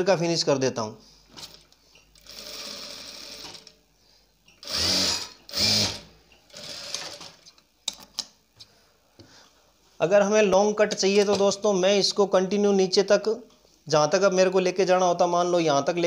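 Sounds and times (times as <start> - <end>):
sewing machine stitching: 2.2 - 3.7, 4.6 - 7.5.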